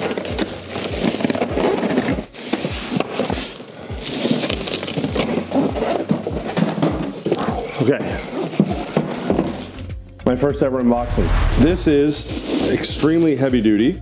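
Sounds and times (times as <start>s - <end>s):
foam packing scraping and crackling: 0.0s - 9.8s
background music with low beat: 8.7s - 12.5s.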